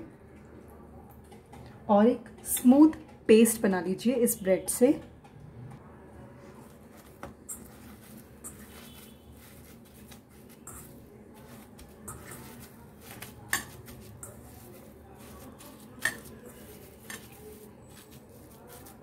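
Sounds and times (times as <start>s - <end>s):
squishing and tearing wet bread: 6.5s - 19.0s.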